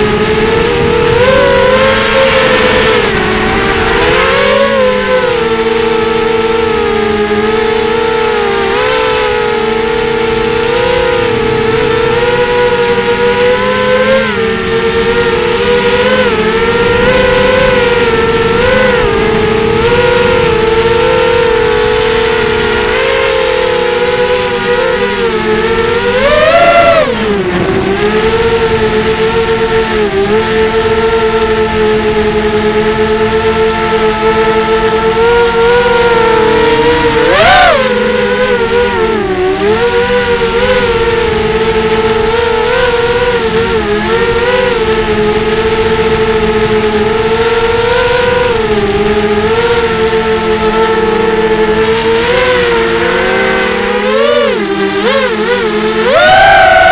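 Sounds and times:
drone motors whining: 0.0 - 56.9.

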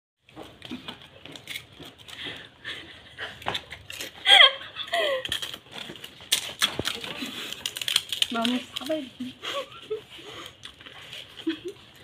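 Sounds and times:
woman laughing: 4.2 - 5.4, 9.3 - 10.1, 11.4 - 11.9
hands clicking and rustling shells: 4.9 - 9.1.

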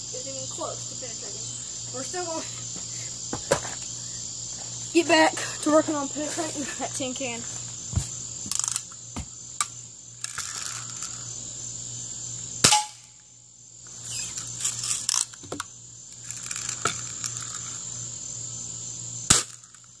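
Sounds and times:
crickets chirring: 0.0 - 20.0.

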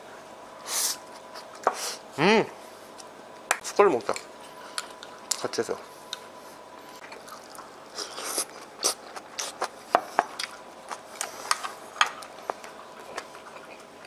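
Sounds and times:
person chewing: 4.7 - 5.4, 7.0 - 14.0.

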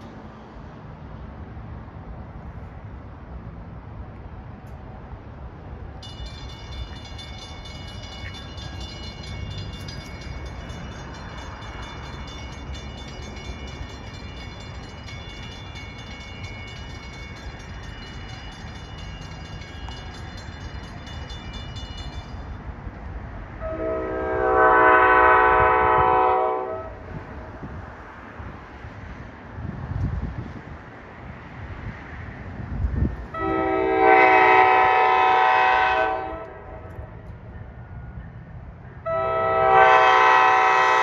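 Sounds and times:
train rumbling: 0.0 - 41.0
warning bell ringing: 6.0 - 22.6
train horn blast: 23.6 - 27.1, 33.3 - 37.1, 39.0 - 41.0.

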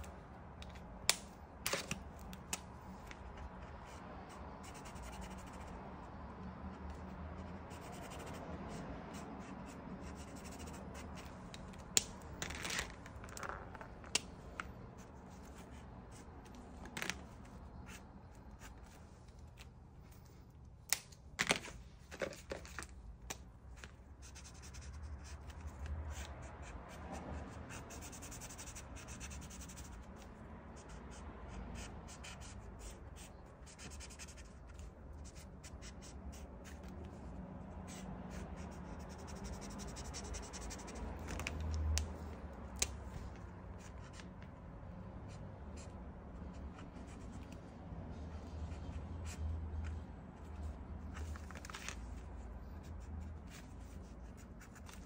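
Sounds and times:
markers clicking and tapping: 0.0 - 5.7, 9.5 - 14.9, 39.1 - 44.6
marker tips scratching on canvas: 0.0 - 19.7, 24.2 - 44.5.

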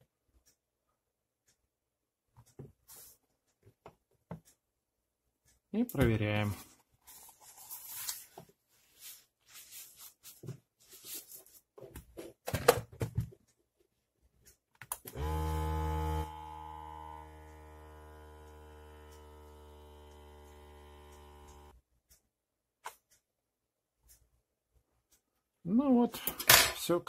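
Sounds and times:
electric air pump buzzing: 15.1 - 21.8.

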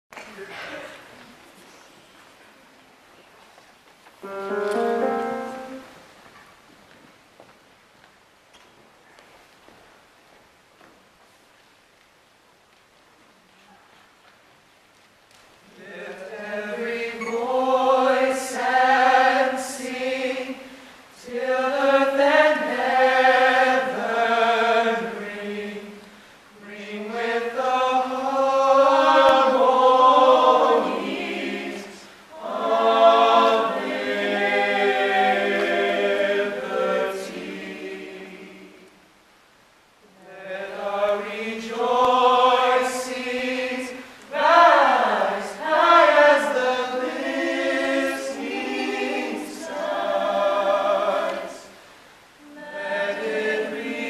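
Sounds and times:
choir singing a cappella: 4.2 - 6.0, 15.7 - 39.1, 40.1 - 54.0.

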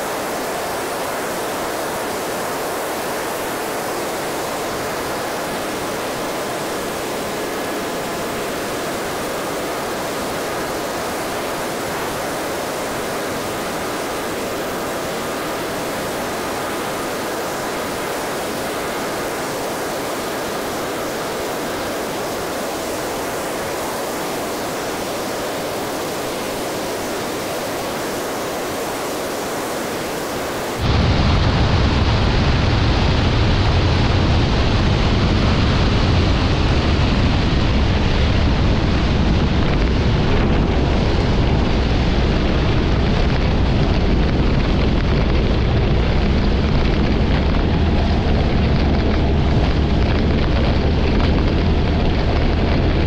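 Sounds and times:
faint aircraft engine: 0.0 - 53.0
deep rumble: 30.8 - 53.0
airflow rushing over camera: 39.0 - 53.0.

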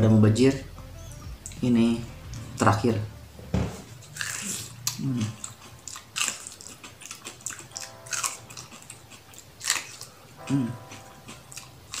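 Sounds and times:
wet chewing: 3.9 - 12.0
crunchy bites of corn: 4.1 - 12.0.

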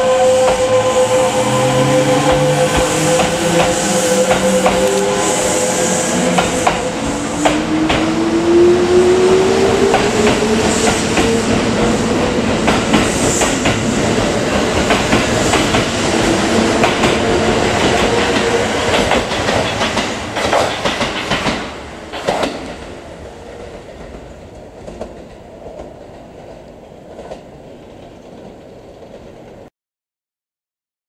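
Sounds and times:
train hum: 0.0 - 29.7
train wheels clattering over rail joints: 12.6 - 22.9.

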